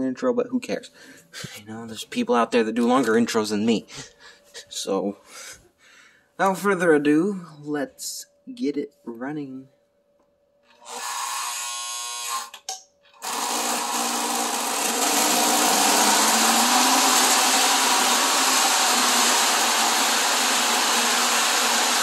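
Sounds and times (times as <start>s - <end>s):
model train motor whirring: 10.8s - 12.6s.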